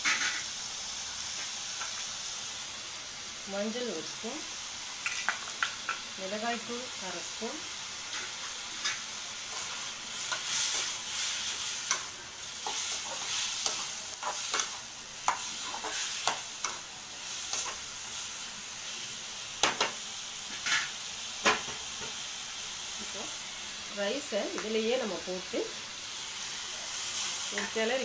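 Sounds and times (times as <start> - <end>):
vegetables sizzling in oil: 0.0 - 28.0
metal spoon scraping a pan: 8.1 - 17.8.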